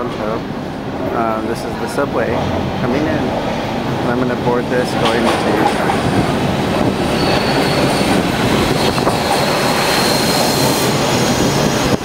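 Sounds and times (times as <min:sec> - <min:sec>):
subway train wheels rumbling: 0:00.0 - 0:12.0
thin high squeal: 0:07.0 - 0:10.8.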